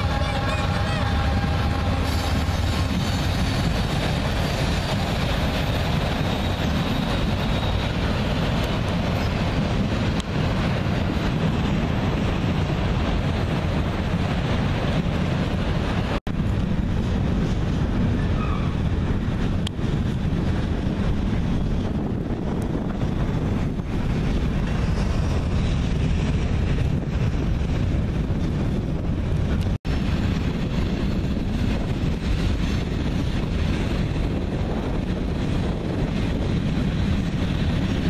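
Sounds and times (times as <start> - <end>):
freight train wheels rumbling: 0.0 - 38.0.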